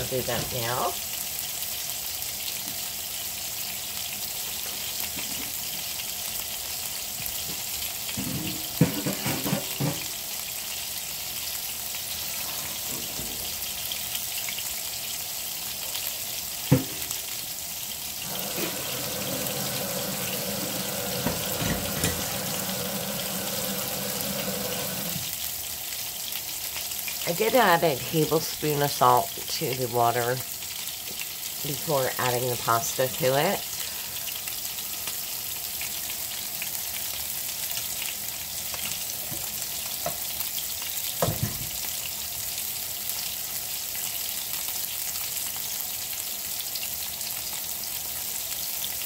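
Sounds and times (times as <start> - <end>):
meatballs sizzling in a frying pan: 0.0 - 49.0
water pouring into a sink: 18.2 - 25.4.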